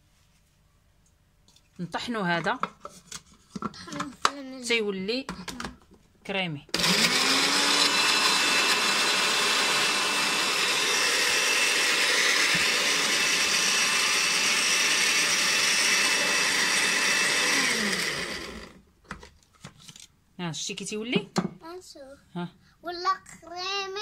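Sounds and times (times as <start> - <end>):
electric chopper motor whirring: 6.8 - 18.8.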